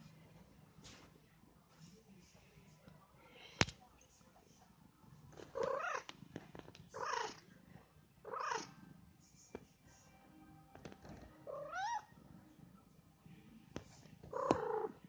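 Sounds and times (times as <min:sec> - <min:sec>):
cat purring: 0:04.4 - 0:15.0
cat calls: 0:11.5 - 0:12.1, 0:14.3 - 0:15.0.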